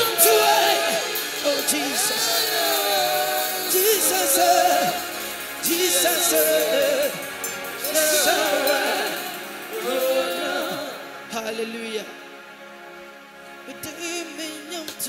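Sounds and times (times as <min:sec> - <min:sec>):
drum kit with cymbal splashes: 0:00.0 - 0:11.1
man singing gospel: 0:00.0 - 0:12.3, 0:13.7 - 0:15.0
keyboard: 0:00.0 - 0:15.0.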